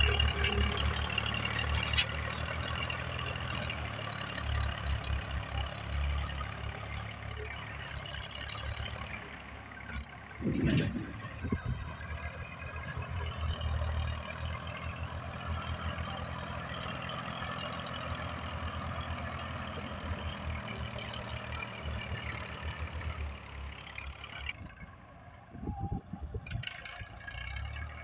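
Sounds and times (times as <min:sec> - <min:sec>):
tractor diesel engine running: 0:00.0 - 0:28.0.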